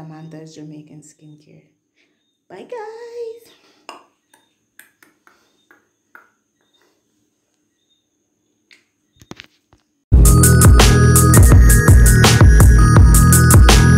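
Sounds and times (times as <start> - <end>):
electronic dance music: 10.2 - 13.9.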